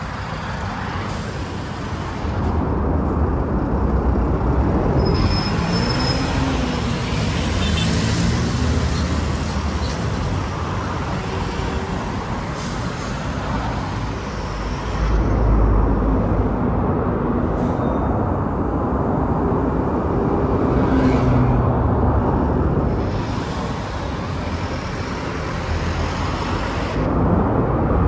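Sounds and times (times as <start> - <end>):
bus diesel engine rumble: 0.0 - 28.0
cars passing: 0.0 - 28.0.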